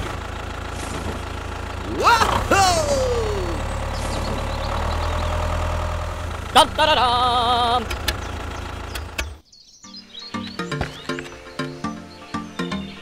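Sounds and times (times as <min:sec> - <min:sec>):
tractor engine idling: 0:00.0 - 0:09.4
clicks: 0:07.8 - 0:08.3.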